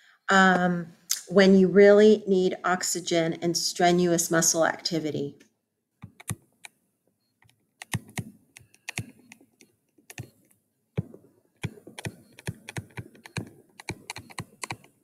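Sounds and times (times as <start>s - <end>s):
stylus tapping on tablet screen: 6.0s - 6.8s, 7.4s - 15.0s.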